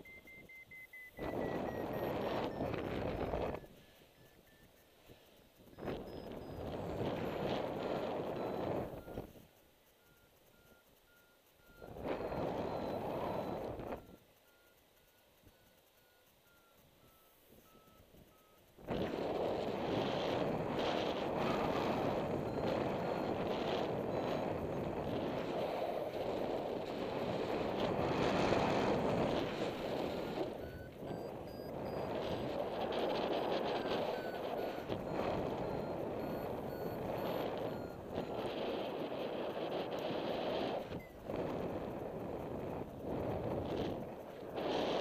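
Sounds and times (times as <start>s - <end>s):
short electronic beeps: 0.0s - 41.2s
wind buffeting microphone: 1.2s - 3.8s, 5.7s - 9.4s, 11.8s - 14.2s, 18.8s - 45.0s.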